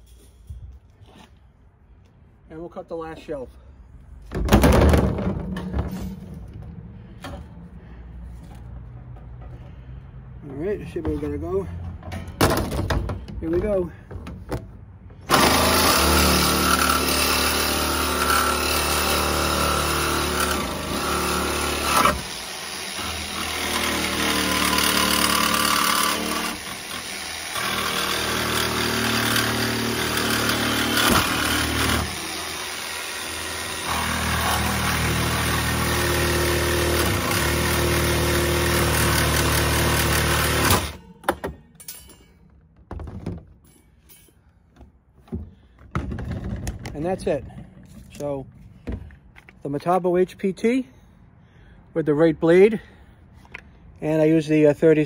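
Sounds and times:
jigsaw cutting metal wire: 15.3 - 41.0.

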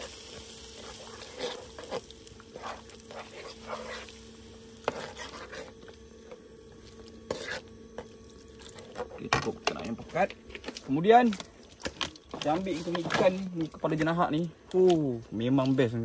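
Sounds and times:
faint sizzle: 0.0 - 16.0.

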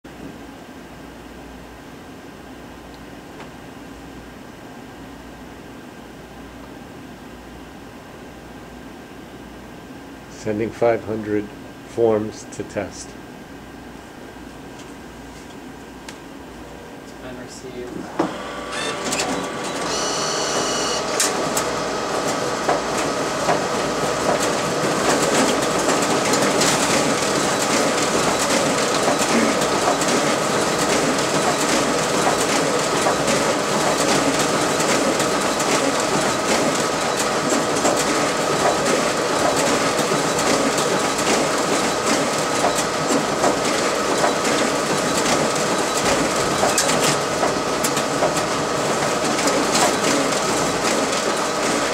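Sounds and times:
printer whirring: 16.6 - 51.9
short beep: 19.9 - 21.0.

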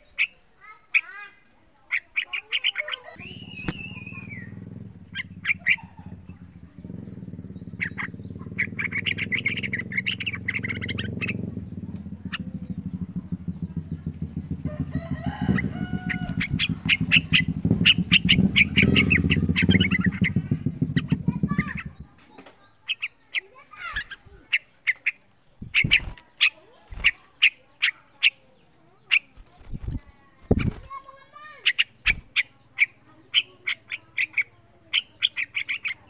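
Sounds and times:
bird singing sharp notes: 2.0 - 14.0.

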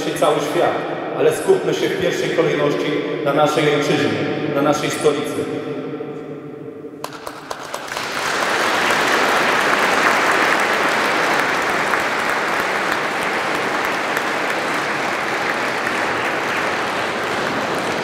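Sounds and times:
crowd applauding: 7.0 - 18.0.

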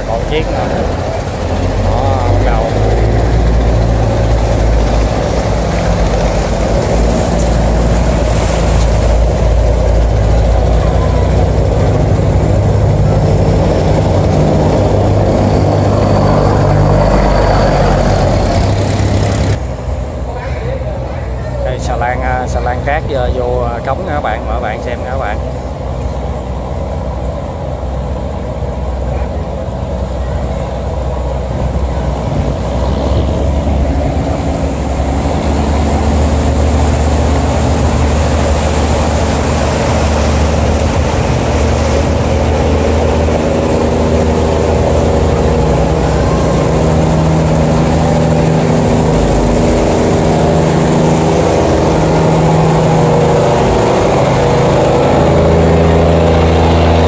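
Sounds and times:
diesel engine running: 0.0 - 57.0
water churning along hull: 0.0 - 57.0.

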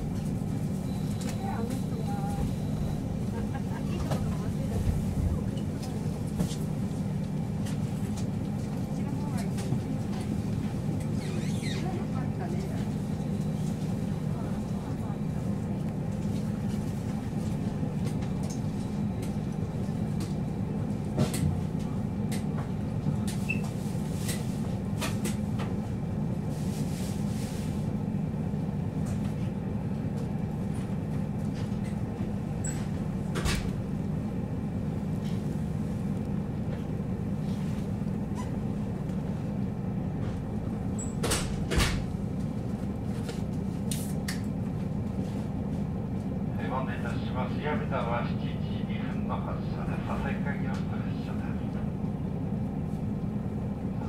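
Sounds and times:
diesel railcar engine idling: 0.0 - 54.0.

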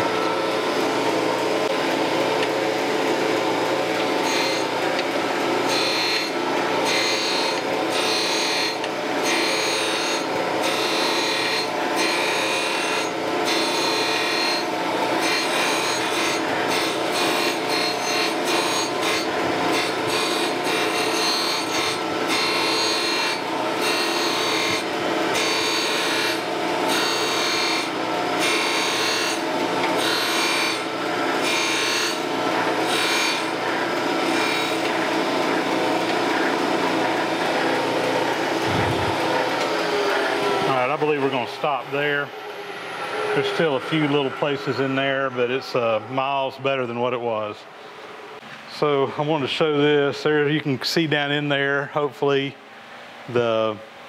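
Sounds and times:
wheel spindle hum: 0.0 - 8.1, 29.4 - 46.2
grinding wheel grinding metal: 0.0 - 45.8.

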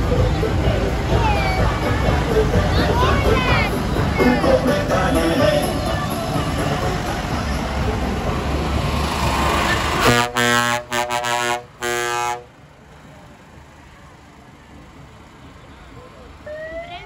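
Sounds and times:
crowd noise: 0.0 - 17.0
tractor engine rumbling: 0.0 - 17.0
vehicle horn blasts: 10.0 - 12.5.

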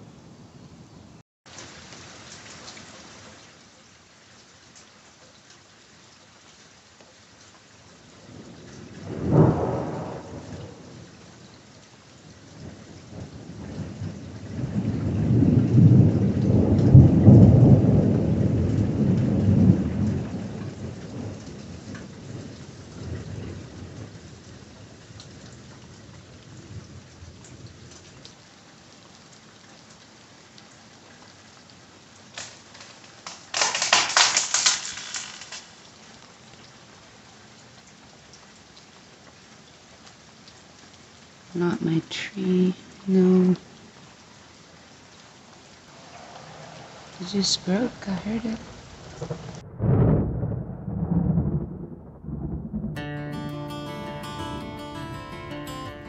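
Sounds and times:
rain pattering: 1.5 - 53.1
thunder clap and rumble: 8.3 - 11.1, 12.6 - 24.2, 46.4 - 53.0
sharp crackling burst: 32.4 - 35.8.

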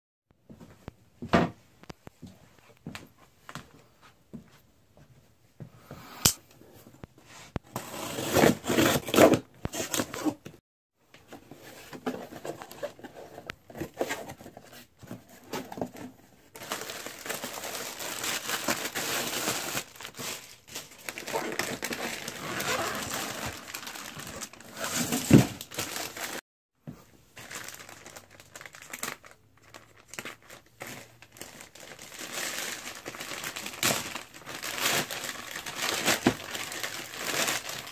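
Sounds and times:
plastic packaging crinkling: 16.6 - 26.4, 27.4 - 37.9.

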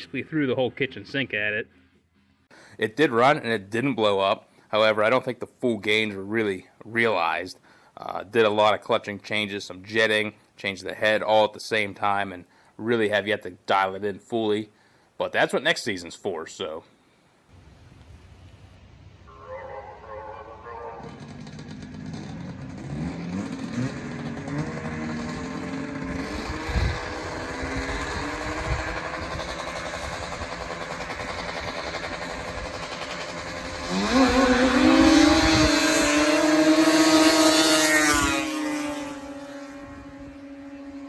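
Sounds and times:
snowmobile engines revving: 19.2 - 41.0.

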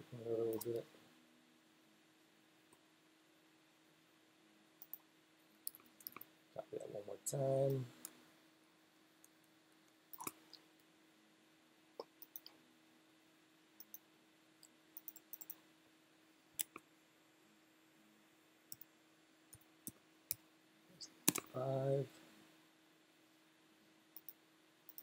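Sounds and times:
faint low hum: 0.0 - 25.0
computer mouse clicks: 0.5 - 0.8, 4.8 - 5.0, 5.6 - 6.3, 10.1 - 10.6, 12.0 - 12.6, 13.8 - 14.0, 14.6 - 15.6, 16.6 - 16.8, 21.2 - 21.5, 24.2 - 25.0
keyboard key presses: 21.2 - 21.5.

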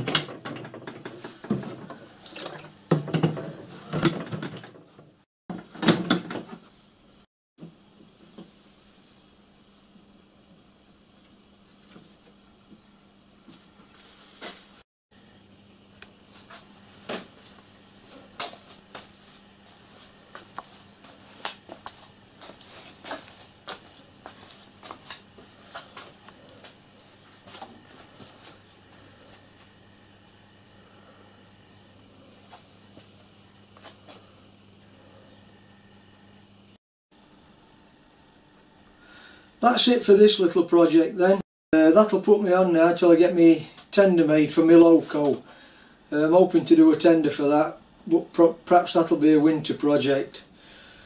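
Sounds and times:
metal clunks and knocks: 0.0 - 2.1, 2.9 - 6.6.

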